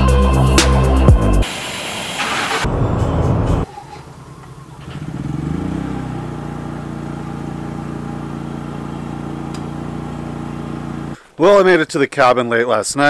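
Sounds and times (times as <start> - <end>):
engine starting and running: 1.4 - 11.2.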